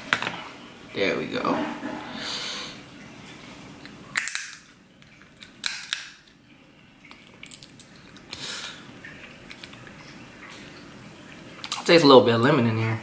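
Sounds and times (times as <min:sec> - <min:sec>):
crab shell cracking: 0:03.8 - 0:06.4, 0:07.1 - 0:08.4
shell crackling and clicking: 0:04.1 - 0:06.4.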